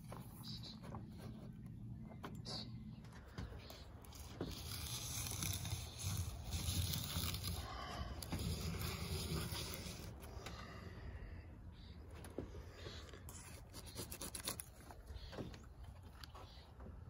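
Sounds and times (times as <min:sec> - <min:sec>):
plastic scraper scraping fiberglass: 0:04.0 - 0:10.3.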